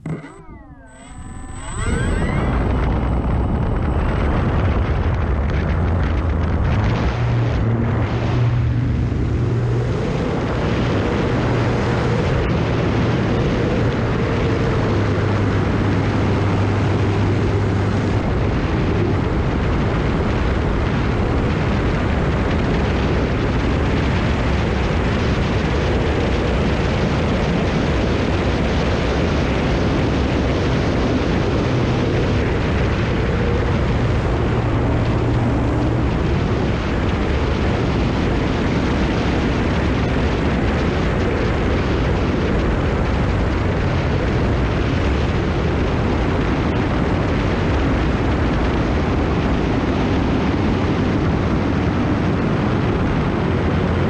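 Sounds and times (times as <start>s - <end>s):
model plane motor and propeller: 0.0s - 54.0s
wind rushing over microphone: 0.0s - 54.0s.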